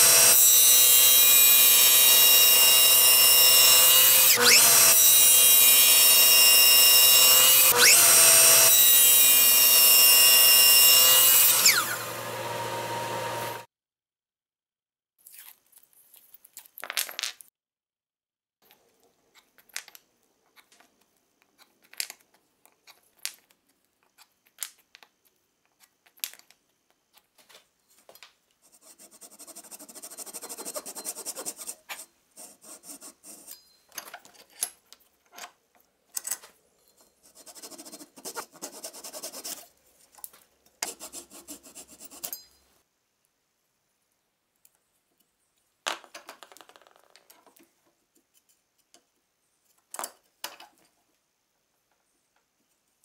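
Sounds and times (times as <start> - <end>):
hand saw cutting wood: 0.0 - 13.7, 28.8 - 33.5, 37.3 - 39.7
knife scoring wood: 37.2 - 39.7.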